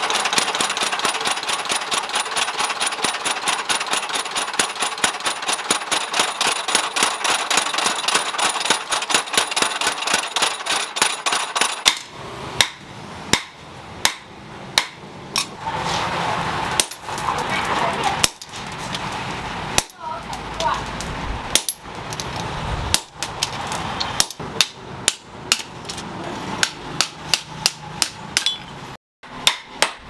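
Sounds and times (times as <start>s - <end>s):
hand hammer striking steel: 0.0s - 15.6s, 24.1s - 26.0s, 26.6s - 28.8s, 29.4s - 30.0s
power hammer pounding steel: 0.0s - 15.6s, 16.7s - 17.2s, 18.1s - 18.5s, 19.7s - 20.7s, 21.5s - 22.0s, 22.9s - 30.0s.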